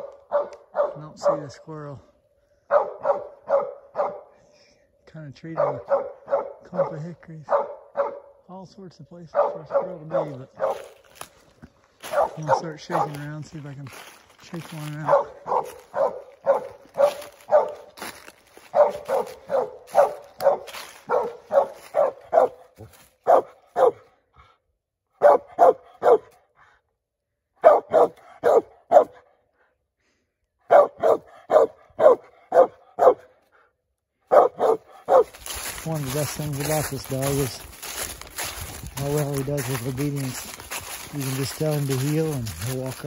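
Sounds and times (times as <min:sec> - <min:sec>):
dog barking: 0:00.0 - 0:01.6, 0:02.6 - 0:04.4, 0:05.5 - 0:08.4, 0:09.3 - 0:11.1, 0:12.0 - 0:13.4, 0:14.9 - 0:24.2, 0:25.1 - 0:26.4, 0:27.6 - 0:29.4, 0:30.6 - 0:33.4, 0:34.2 - 0:40.4.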